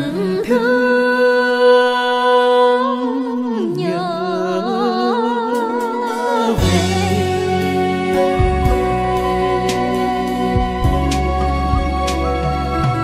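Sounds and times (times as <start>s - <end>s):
person singing wordless vocalise: 0.0s - 13.0s
quiet instrumental accompaniment: 6.1s - 13.0s
instrumental music with bass line: 6.3s - 13.0s.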